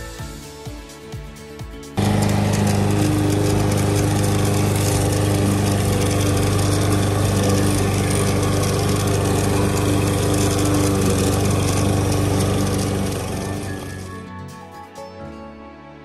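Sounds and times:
lawn mower engine running: 0:02.0 - 0:14.2.

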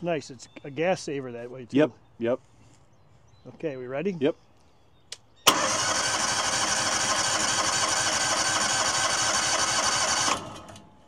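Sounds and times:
starter cranking gas engine: 0:05.5 - 0:10.9.

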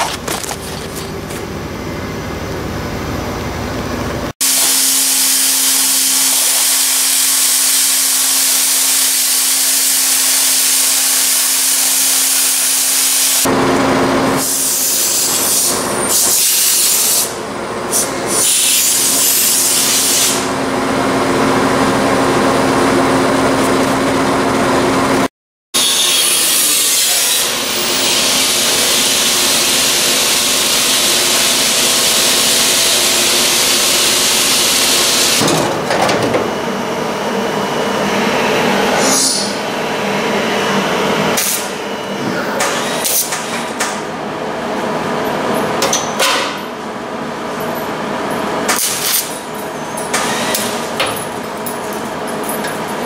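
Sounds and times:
power tool cutting sheet metal: 0:04.4 - 0:13.5, 0:18.0 - 0:20.6, 0:25.8 - 0:35.6, 0:42.6 - 0:43.7, 0:50.1 - 0:51.2.

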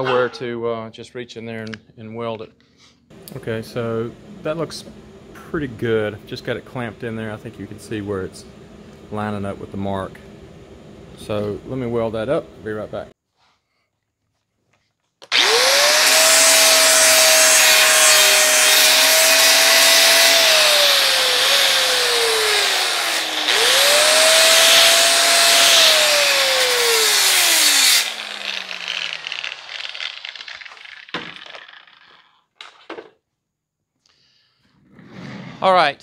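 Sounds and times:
angle grinder sanding steel: 0:15.3 - 0:31.1.

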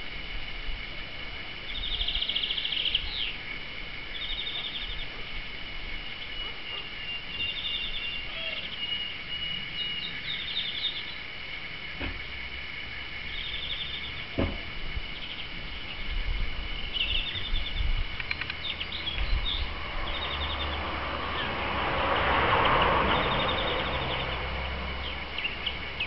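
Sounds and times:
songbirds rattling chirps: 0:01.3 - 0:26.0
birds twittering: 0:01.4 - 0:26.0
rush of noise: 0:11.3 - 0:26.0
sharp knock: 0:14.4 - 0:14.7.

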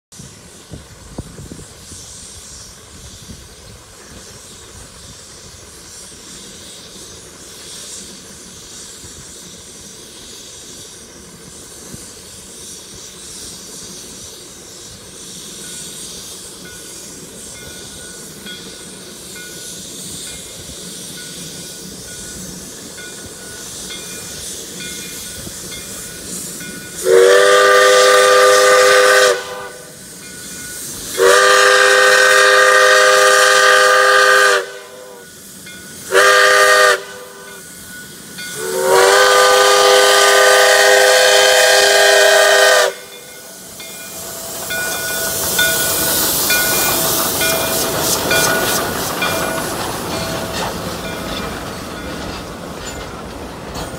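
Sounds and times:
steam locomotive hissing steam: 0:00.0 - 0:53.9
steam whistle blasts: 0:26.7 - 0:49.4.

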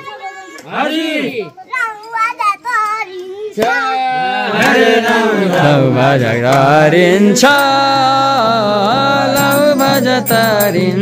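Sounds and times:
chant-like singing: 0:03.6 - 0:11.0.

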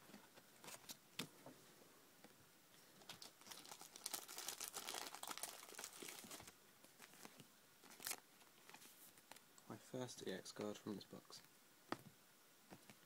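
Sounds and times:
foil wrapper crinkling: 0:03.0 - 0:09.4.

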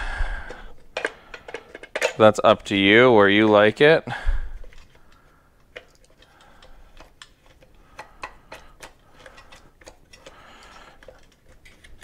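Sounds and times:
plastic parts clicking: 0:04.6 - 0:12.0.

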